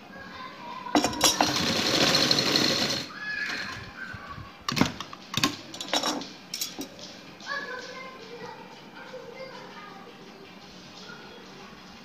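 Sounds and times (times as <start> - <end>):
sewing machine stitching: 1.0 - 3.7.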